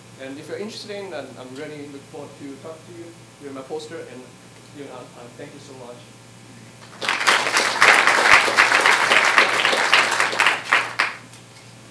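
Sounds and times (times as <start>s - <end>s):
audience applauding: 6.8s - 11.3s.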